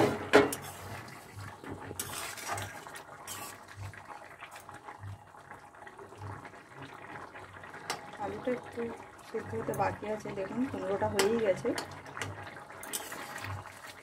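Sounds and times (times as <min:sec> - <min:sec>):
metal spatula scraping pan: 0:00.0 - 0:01.0, 0:01.9 - 0:03.6, 0:12.9 - 0:13.6
curry bubbling: 0:00.0 - 0:14.0.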